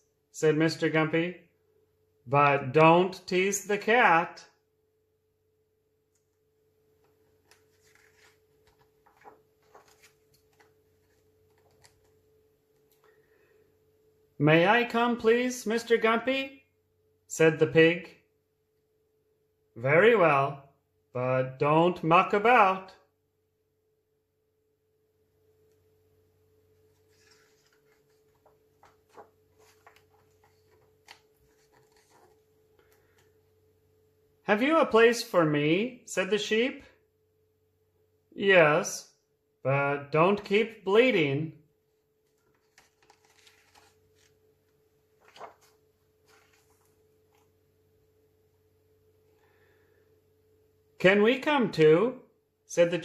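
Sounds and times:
faint steady hum: 0:00.0 - 0:53.0
book page turning: 0:07.0 - 0:13.0, 0:26.7 - 0:33.4, 0:42.2 - 0:47.6.

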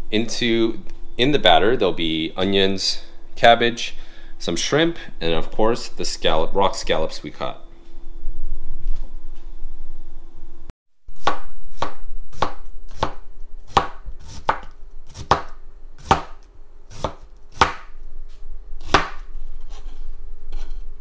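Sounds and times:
knife chopping cabbage on board: 0:11.2 - 0:17.9, 0:18.8 - 0:19.2.

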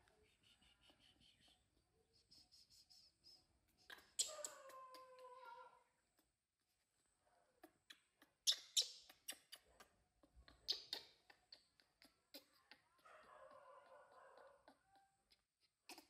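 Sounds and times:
baby monkey squeaking: 0:03.8 - 0:05.7, 0:07.6 - 0:13.0.

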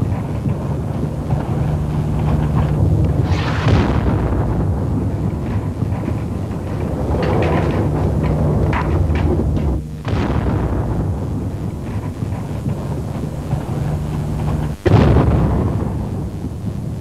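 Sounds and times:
heavy continuous rumble: 0:00.0 - 0:17.0
artillery shell blasts: 0:01.3 - 0:13.8.

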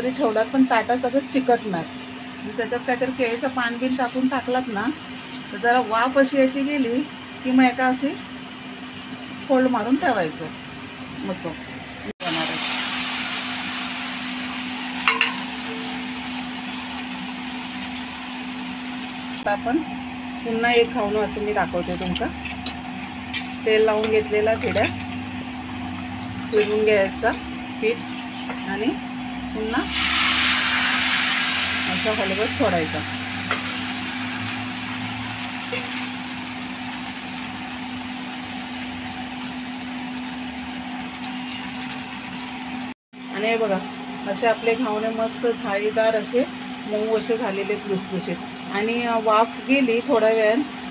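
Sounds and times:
batter sizzling on a hot pan: 0:12.2 - 0:19.5, 0:29.8 - 0:43.0.

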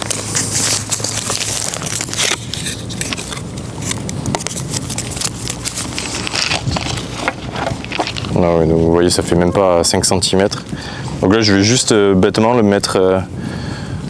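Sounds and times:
plastic packaging crinkling: 0:00.0 - 0:08.6.

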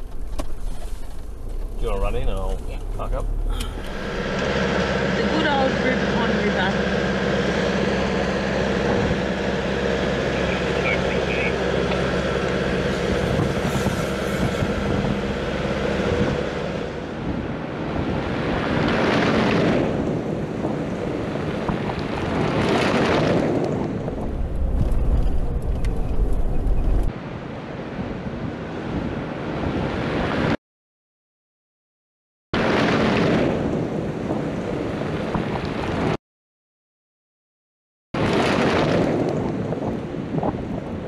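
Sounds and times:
deep rumble: 0:00.0 - 0:27.1
vehicle road and wind noise: 0:00.0 - 0:30.6, 0:32.6 - 0:36.2, 0:38.2 - 0:41.0
whooshes: 0:12.6 - 0:17.1.

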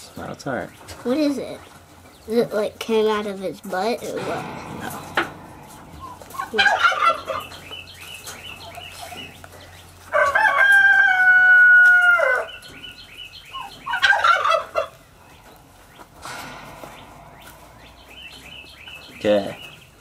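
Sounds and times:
turkey gobbling: 0:06.0 - 0:09.4, 0:10.1 - 0:15.3
rooster crowing: 0:10.1 - 0:12.5.

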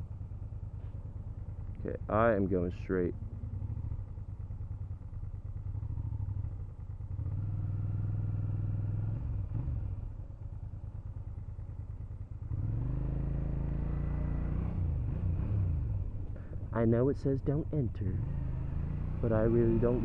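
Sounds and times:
motorcycle engine: 0:00.0 - 0:20.0.

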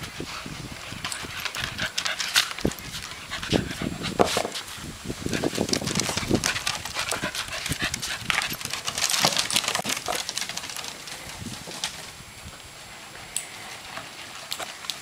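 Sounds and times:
dog claws clicking on wooden boards: 0:05.4 - 0:12.0.

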